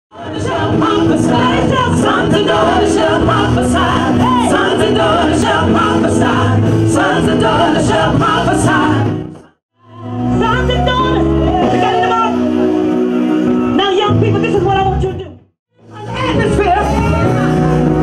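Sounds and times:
choir singing gospel music: 0.1 - 14.1.

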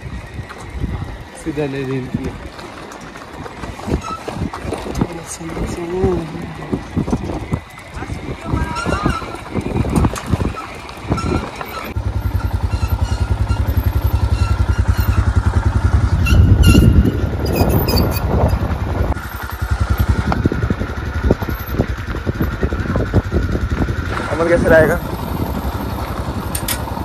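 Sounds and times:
motorcycle engine passing: 0.0 - 27.0.

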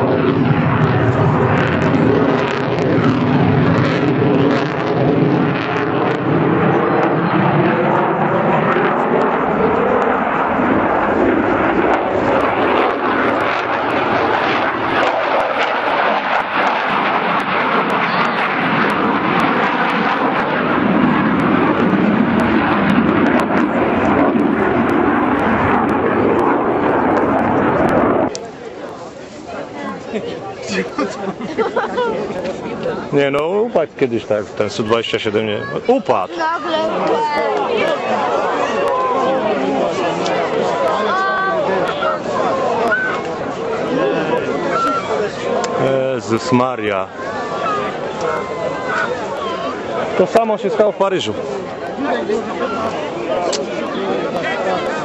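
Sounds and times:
jet engine roar: 0.0 - 55.0.

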